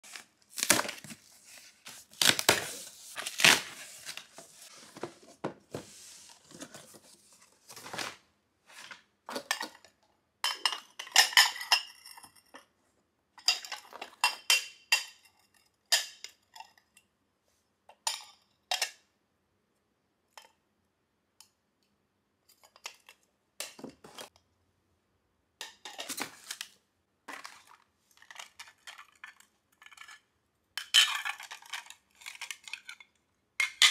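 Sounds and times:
glass dishes clinking and scraping: 9.4 - 12.7, 13.4 - 16.8.

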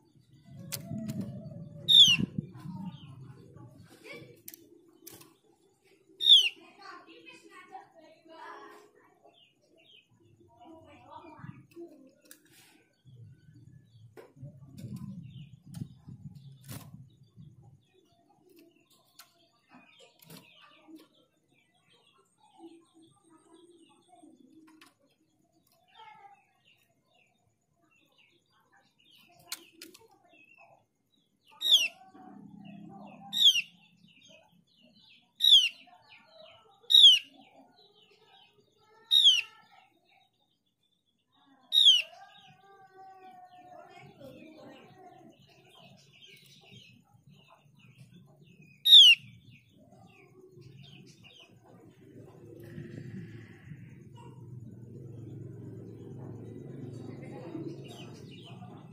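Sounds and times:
bird chirps and twittering: 0.0 - 58.9.

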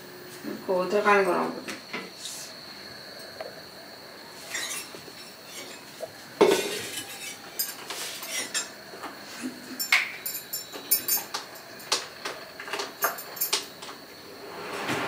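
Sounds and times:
pot and utensils clinking: 4.5 - 8.7.

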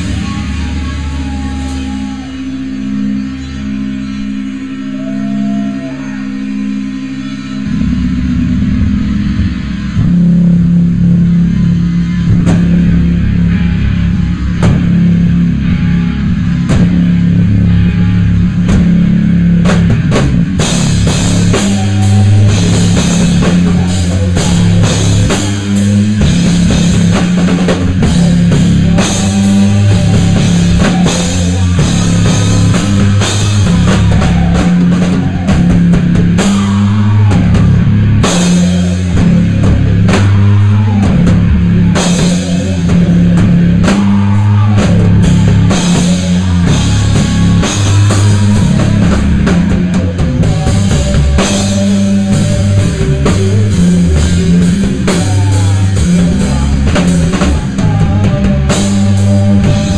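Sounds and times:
rock band playing: 0.0 - 59.9.

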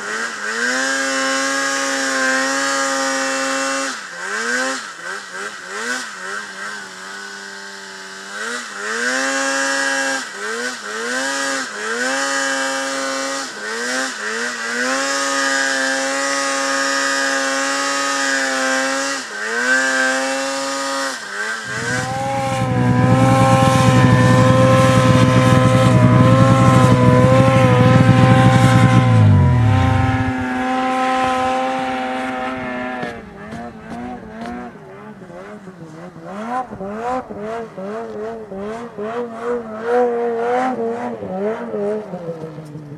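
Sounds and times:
snowmobile engine revving: 0.0 - 42.9.

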